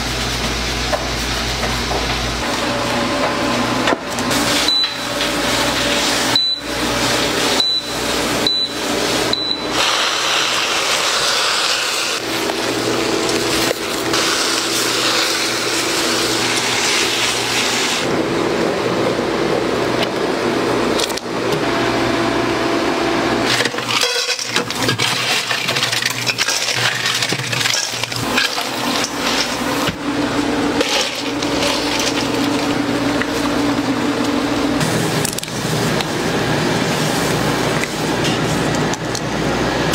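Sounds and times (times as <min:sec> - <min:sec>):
steady mechanical hum: 0:00.0 - 0:39.9
metal bowls and utensils clinking: 0:23.5 - 0:30.0.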